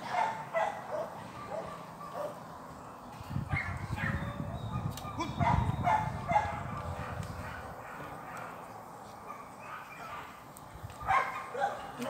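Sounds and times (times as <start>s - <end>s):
dog yipping and barking: 0.1s - 2.4s, 3.5s - 8.4s, 11.0s - 12.0s.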